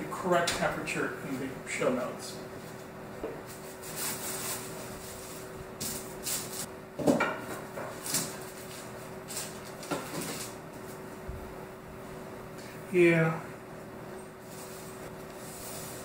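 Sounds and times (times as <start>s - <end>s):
steady low hum: 0.0s - 16.0s
parchment paper rustling: 2.6s - 6.7s, 7.9s - 11.1s.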